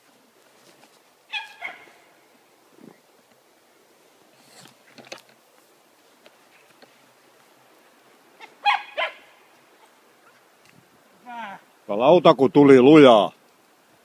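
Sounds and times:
dog barking: 1.3 - 1.9, 8.6 - 9.3.

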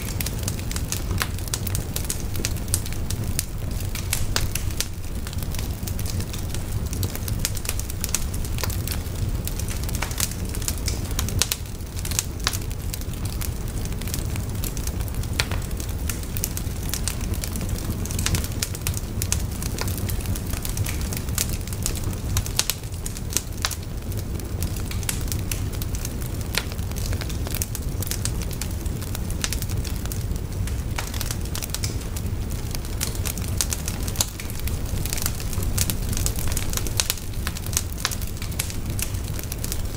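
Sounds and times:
wood fire crackling and popping: 0.0 - 39.9.

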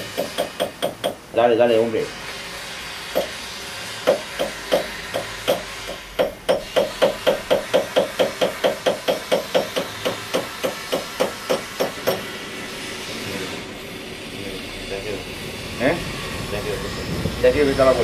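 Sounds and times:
hammer beating metal: 0.0 - 1.2, 4.0 - 12.3.

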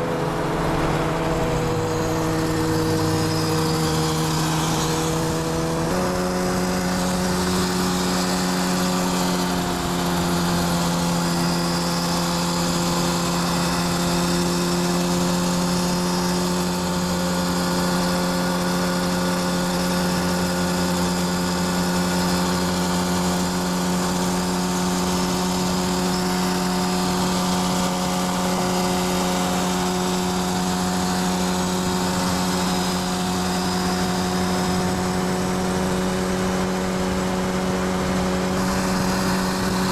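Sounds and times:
road and wind noise: 0.0 - 39.9
vehicle engine droning: 0.0 - 39.9.

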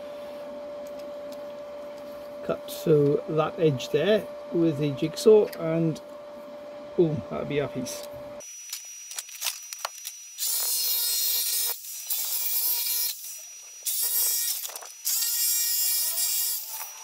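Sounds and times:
jigsaw cutting sheet steel: 8.4 - 17.0.

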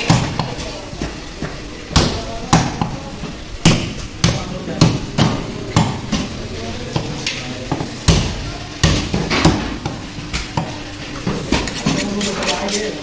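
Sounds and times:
cleaver chopping meat on wood: 1.9 - 3.0.

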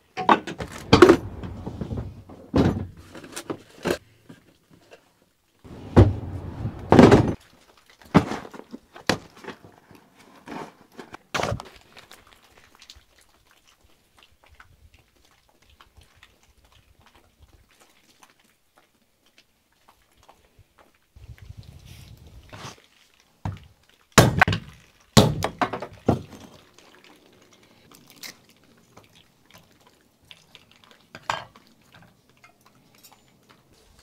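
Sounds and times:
plastic toolbox knocks: 5.8 - 7.4.

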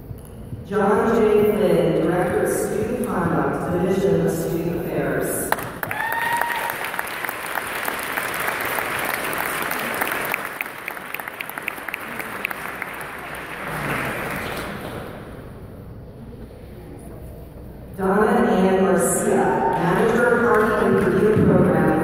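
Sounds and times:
audience applauding: 5.5 - 15.3.

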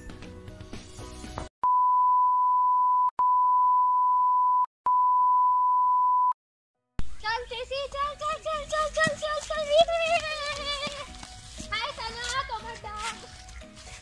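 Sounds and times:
background music: 0.0 - 1.5, 7.1 - 14.0.

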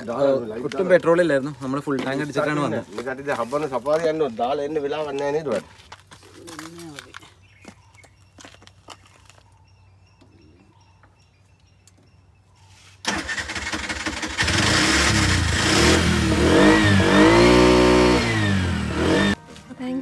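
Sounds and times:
tuk-tuk engine revving: 13.1 - 19.4.

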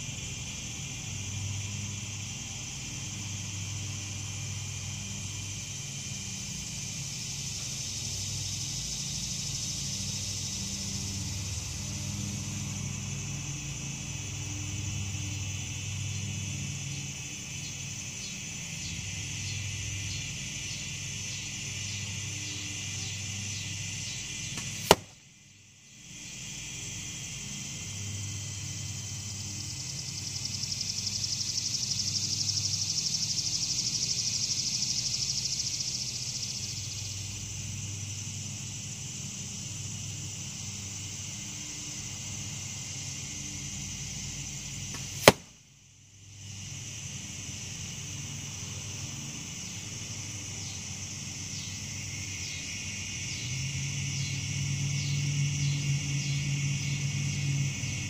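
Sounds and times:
arrow hitting foam target: 24.6 - 25.2, 44.9 - 45.5.

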